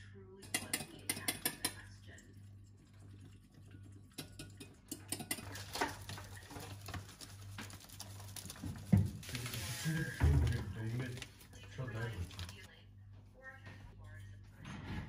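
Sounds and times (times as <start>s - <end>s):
plastic bag rustling: 5.5s - 12.7s.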